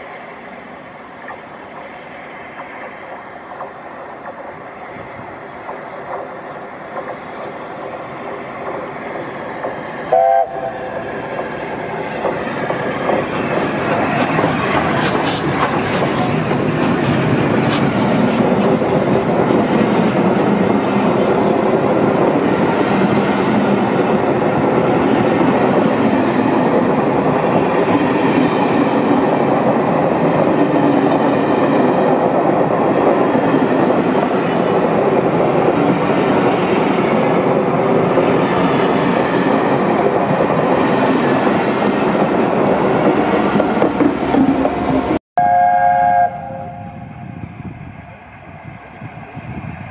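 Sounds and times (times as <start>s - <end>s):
train wheels rumbling and clattering: 0.0s - 45.2s
steam locomotive chime whistle: 10.1s - 11.0s, 15.0s - 16.4s, 45.4s - 47.0s.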